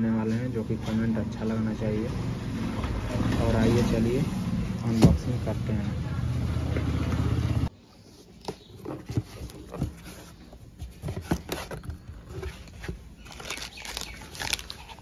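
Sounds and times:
low engine-like hum: 0.6 - 7.7
cardboard box being opened: 8.3 - 15.0
plastic-wrapped parts rustling: 8.8 - 15.0.

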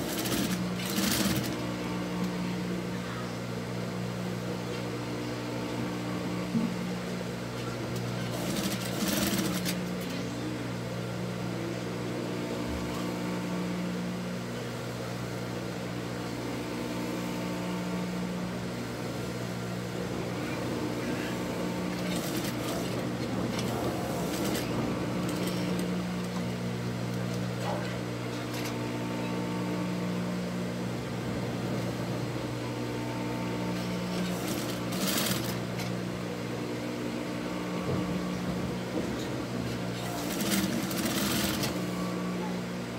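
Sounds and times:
sewing machine stitching: 0.0 - 1.6, 8.0 - 10.2, 21.9 - 25.9, 33.8 - 35.9, 39.8 - 41.8.

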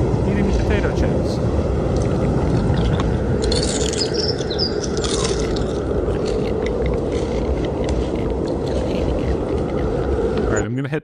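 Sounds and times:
cold wind noise: 0.0 - 10.8
potato chips crunching: 3.4 - 10.0
bird chirps: 3.5 - 5.6.

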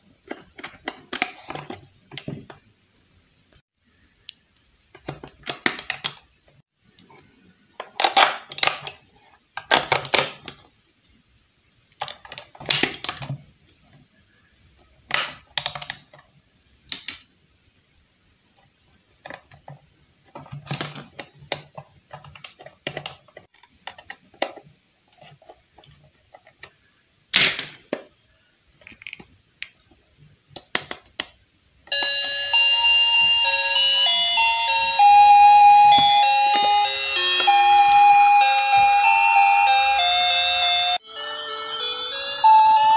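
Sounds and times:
plastic toy parts clicking: 5.0 - 6.3, 7.8 - 9.0, 9.6 - 10.7, 15.1 - 16.3, 16.9 - 17.3, 18.6 - 26.8, 28.8 - 29.8, 30.5 - 31.4.

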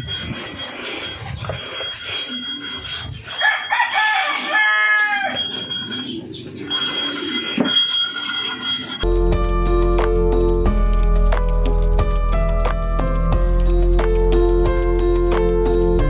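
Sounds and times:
rooster crowing: 3.3 - 5.6
music: 9.0 - 16.0.

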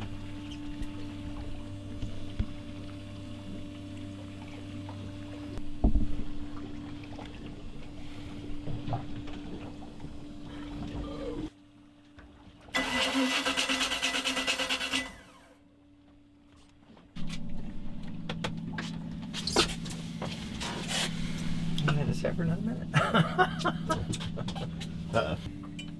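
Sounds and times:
steady low hum: 0.0 - 12.7, 15.2 - 25.9
boat engine cranking on starter: 12.8 - 15.5.

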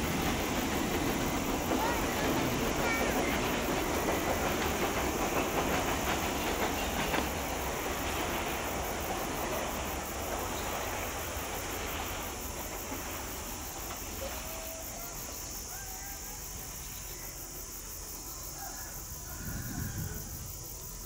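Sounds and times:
wheels clacking: 0.0 - 15.9
train wagons rolling over rails: 0.0 - 21.0.

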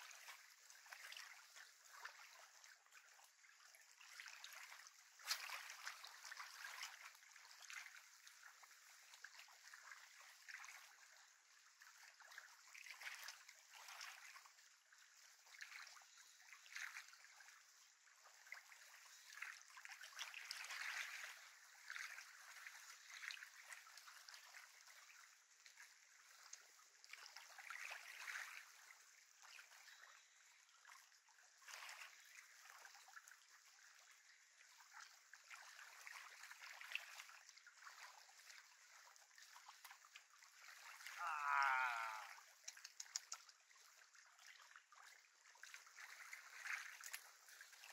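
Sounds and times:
small waves lapping on shore: 0.0 - 47.9.

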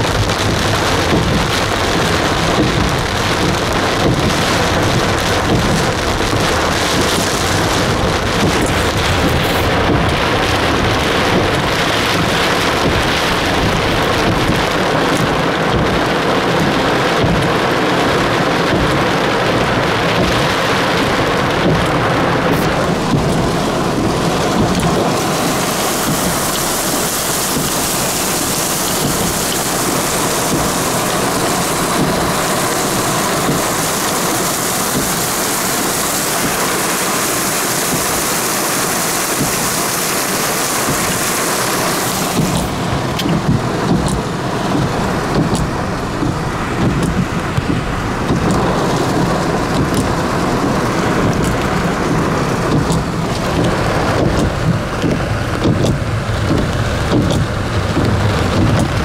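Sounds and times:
dull wash of water: 0.0 - 59.0
heavy rain hissing: 0.0 - 59.0
sharp drip-like ticks: 42.3 - 51.8, 52.7 - 59.0.

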